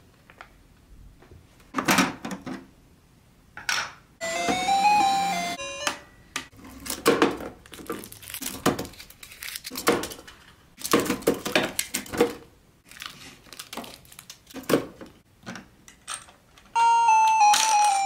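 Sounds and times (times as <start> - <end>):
wrapped candies clattering into plastic: 6.7 - 15.2, 17.2 - 18.0.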